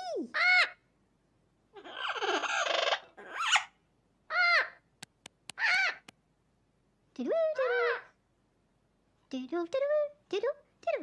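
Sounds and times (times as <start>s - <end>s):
sharp clicks: 5.0s - 6.2s.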